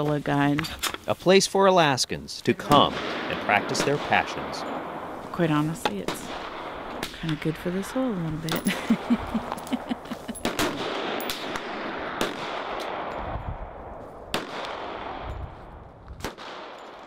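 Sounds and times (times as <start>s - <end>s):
gunshots: 2.6s - 8.6s, 10.4s - 13.2s, 14.3s - 15.3s, 16.2s - 17.0s.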